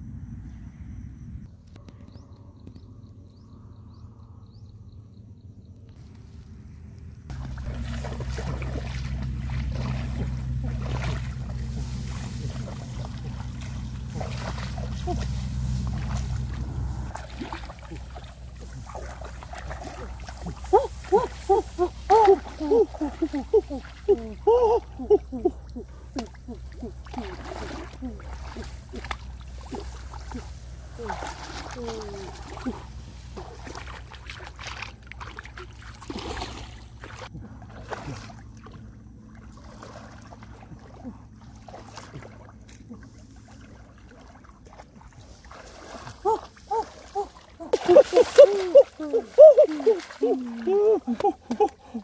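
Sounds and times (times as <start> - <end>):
wind rumble on microphone: 0.0 - 17.3
rice stalks rustling: 7.3 - 24.1, 27.2 - 34.9
muddy water sloshing: 7.3 - 52.0
short high voice-like sounds: 46.2 - 51.8.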